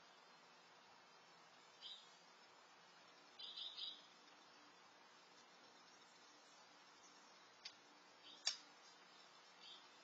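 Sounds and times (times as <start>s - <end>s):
faint outdoor hiss: 0.0s - 10.0s.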